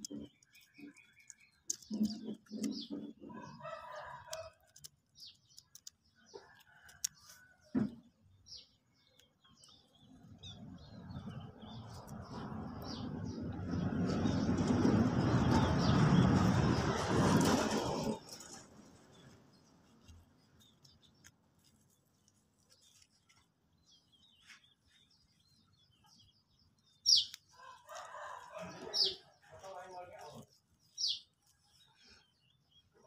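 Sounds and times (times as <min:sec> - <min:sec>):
birds chirping: 0:00.0 - 0:04.1, 0:21.9 - 0:33.0
scratchy rustling of coir fibre: 0:17.0 - 0:25.8, 0:27.3 - 0:32.2.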